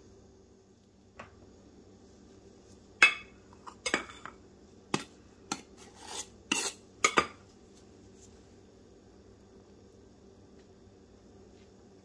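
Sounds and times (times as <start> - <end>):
knife scraping bowl: 4.9 - 7.3.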